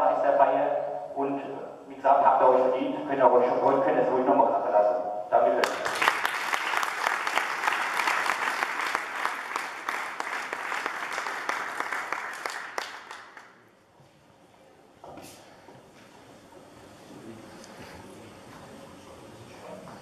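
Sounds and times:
audience applauding: 5.6s - 13.6s.

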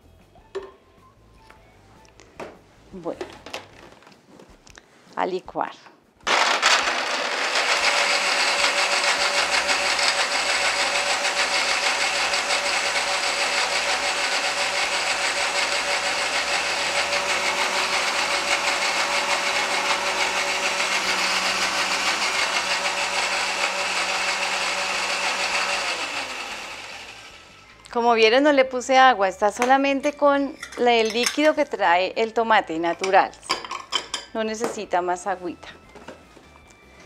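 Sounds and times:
blender motor running: 6.3s - 27.8s.

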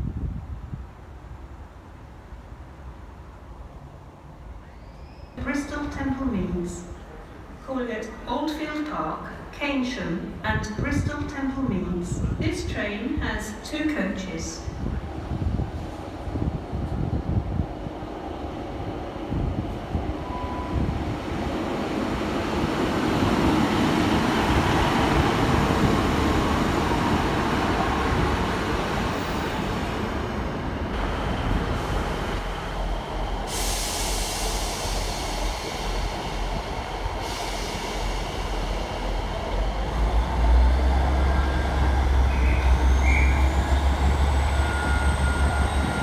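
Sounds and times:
diesel train rumbling: 14.3s - 46.0s.

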